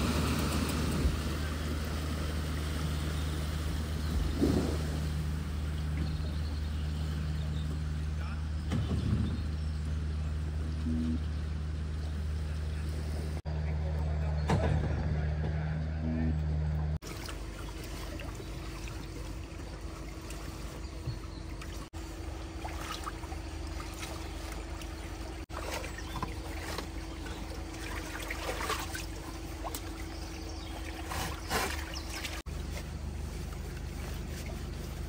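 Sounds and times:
water splashing: 0.0 - 9.4, 17.0 - 35.0
floodwater running: 0.0 - 14.5, 16.9 - 35.0
steady low hum: 0.0 - 35.0.

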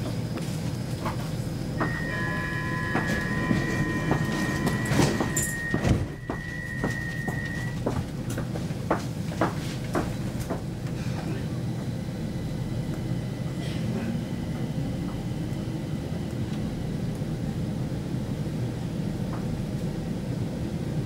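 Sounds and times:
train carriage hum: 0.0 - 21.0
sliding doors closing thump: 1.8 - 7.7
high warning tone: 1.8 - 8.0.

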